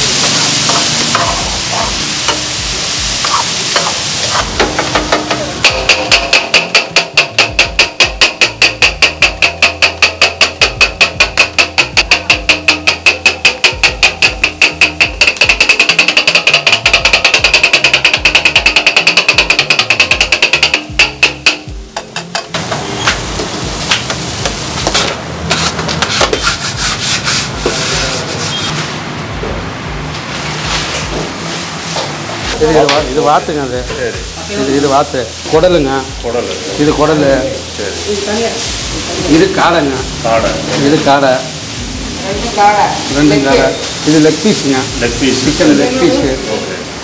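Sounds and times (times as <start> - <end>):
steel chopper clanking on iron griddle: 0.0 - 2.6, 3.2 - 26.6.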